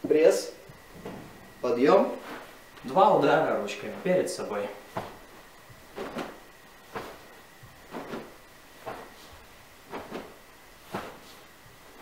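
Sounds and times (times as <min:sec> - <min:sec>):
fabric swishes and snaps: 0:04.9 - 0:05.3, 0:05.9 - 0:12.0.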